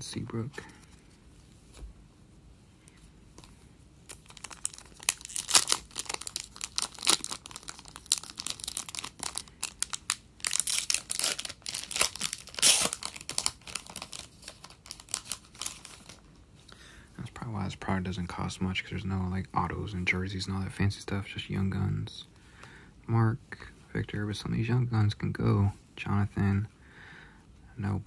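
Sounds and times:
foil wrapper tearing and crinkling: 0:04.1 - 0:16.2.

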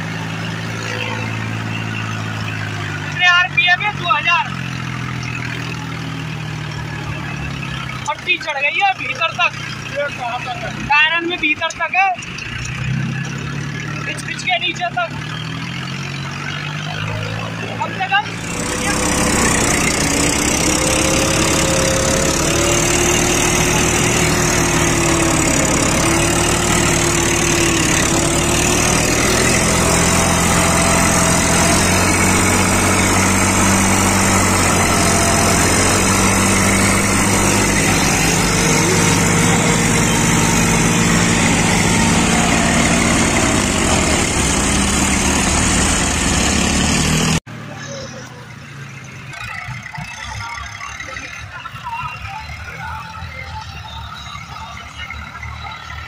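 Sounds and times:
tractor diesel engine under load: 0:00.0 - 0:56.0.

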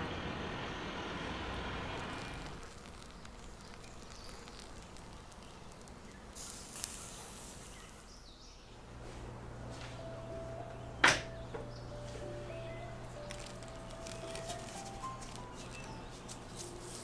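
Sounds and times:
faint outdoor background noise: 0:00.0 - 0:17.0
short hiss: 0:06.4 - 0:08.1.

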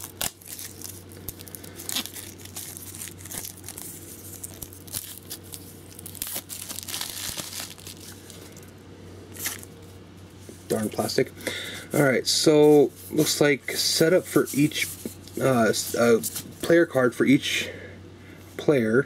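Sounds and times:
plastic shrink wrap crinkling: 0:00.0 - 0:08.6.

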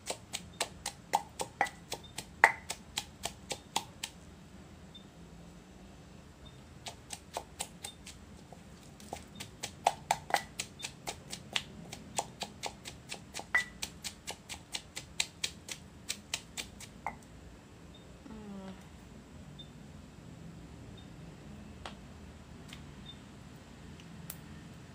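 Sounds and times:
pestle pounding in mortar: 0:00.0 - 0:04.2, 0:06.8 - 0:17.2.

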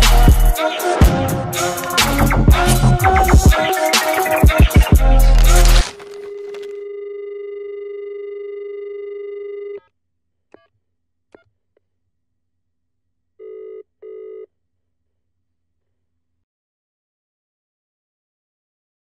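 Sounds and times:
telephone dial tone: 0:06.0 - 0:09.9
telephone ringing tone: 0:06.1 - 0:09.8, 0:13.4 - 0:14.5.

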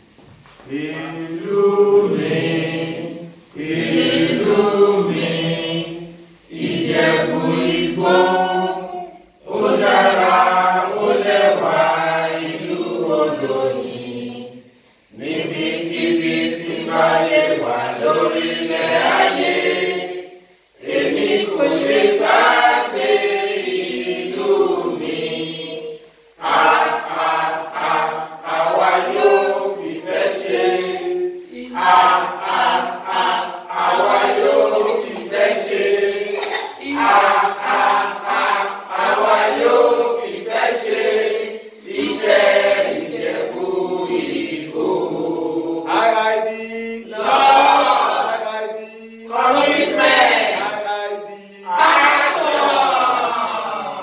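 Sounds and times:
group singing unaccompanied: 0:00.0 - 0:54.0.

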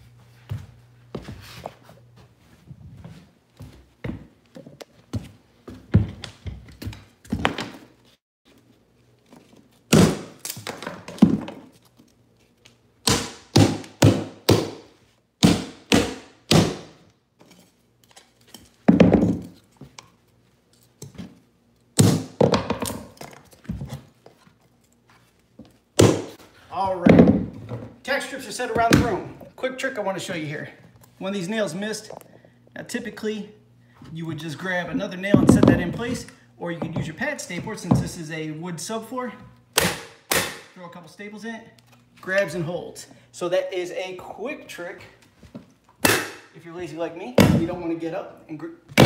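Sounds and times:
hammer striking nails: 0:13.0 - 0:17.0, 0:39.8 - 0:40.7.

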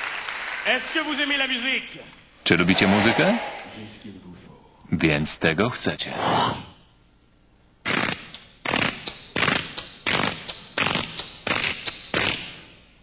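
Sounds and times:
man beatboxing into a microphone: 0:07.9 - 0:12.4.

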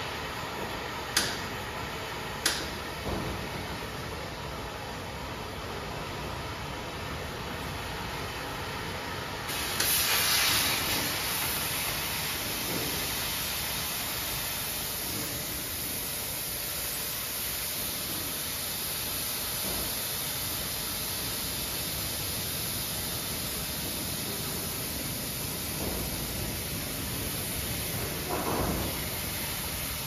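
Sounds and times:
gas cutting torch hissing: 0:09.5 - 0:30.0.

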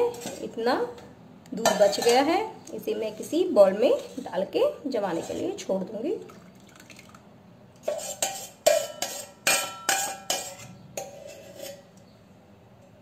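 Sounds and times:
steel spoon scraping metal pot: 0:03.7 - 0:05.6, 0:07.8 - 0:12.2.

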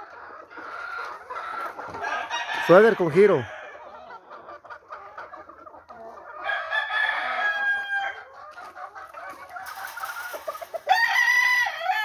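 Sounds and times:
rooster crowing: 0:02.0 - 0:03.7, 0:06.4 - 0:08.2, 0:10.9 - 0:12.0.

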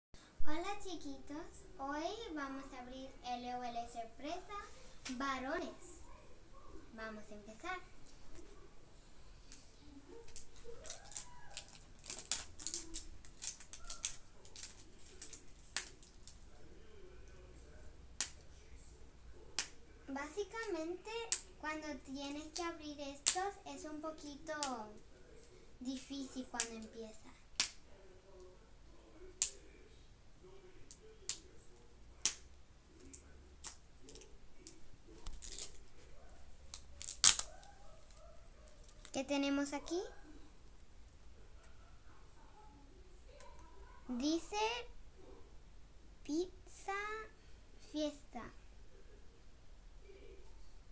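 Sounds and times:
plastic wrapping crackling: 0:10.2 - 0:16.6, 0:33.0 - 0:39.2.

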